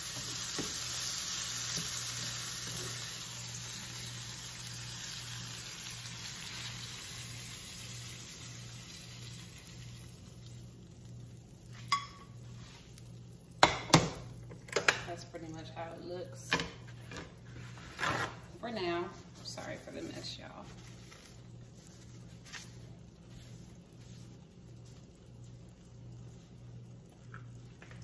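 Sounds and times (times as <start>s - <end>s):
food sizzling in frying pan: 0.0s - 14.6s.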